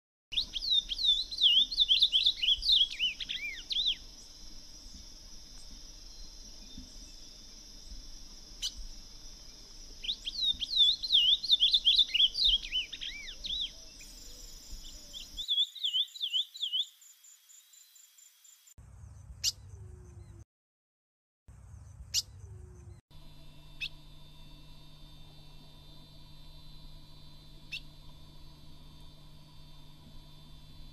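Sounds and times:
bird singing: 0.3 - 20.4, 21.6 - 30.9
steady high whine: 0.4 - 15.5, 23.1 - 30.9.

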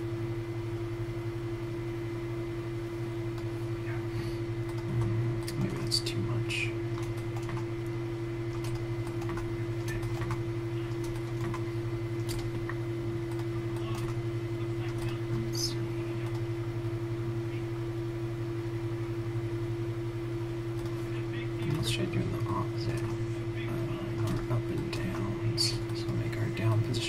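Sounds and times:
low electrical hum: 0.0 - 27.0
keyboard and mouse clicks: 6.9 - 7.7, 8.5 - 11.6, 12.2 - 14.2, 24.2 - 25.3.

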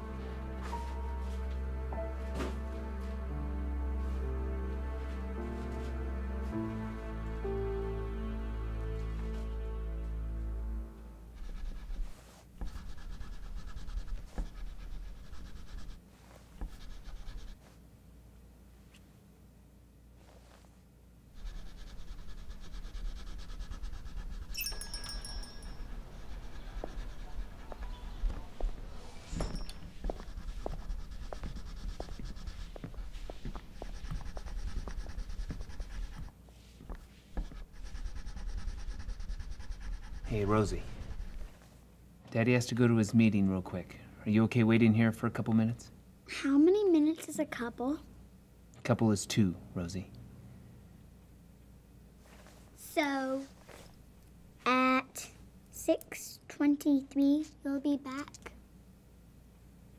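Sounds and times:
low room hum: 0.0 - 59.9
crayon scribbling on paper: 11.3 - 17.6, 21.3 - 24.6, 25.7 - 29.1, 29.9 - 36.4, 37.2 - 41.6.

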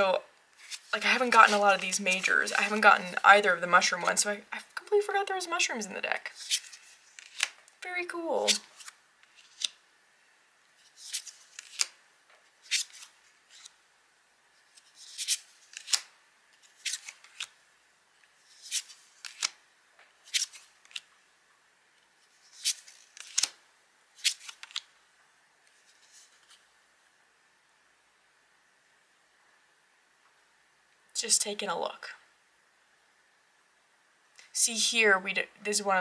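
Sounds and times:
cards being flipped: 0.6 - 3.2, 6.3 - 7.7, 8.5 - 9.8, 10.8 - 12.0, 12.6 - 13.8, 14.6 - 17.6, 18.4 - 19.6, 20.2 - 21.1, 22.3 - 23.6, 24.2 - 24.9, 25.7 - 26.6.

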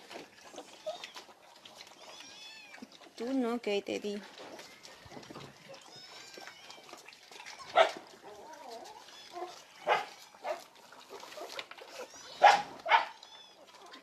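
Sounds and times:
puppies whimpering and squeaking: 0.1 - 3.1, 4.3 - 14.0
puppies yelping: 0.3 - 3.0, 4.4 - 14.0.

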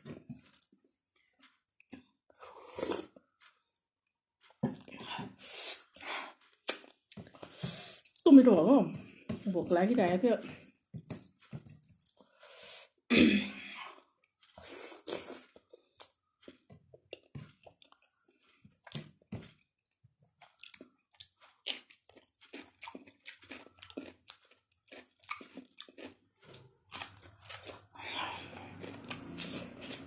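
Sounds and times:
person chewing noodles: 0.2 - 0.8, 1.4 - 3.8, 4.4 - 8.2, 10.4 - 13.0, 13.9 - 19.6, 20.4 - 30.0
wet mouth clicks and smacks: 6.6 - 7.0.

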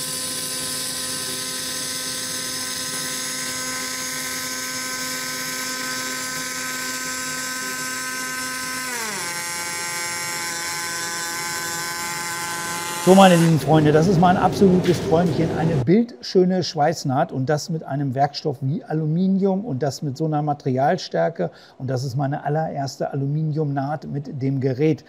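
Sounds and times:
welding arc buzzing: 0.0 - 15.8.

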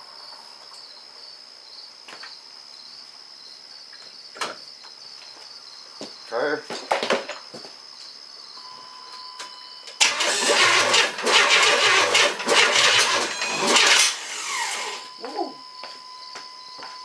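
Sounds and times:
engine cranking and sputtering: 10.0 - 15.1.

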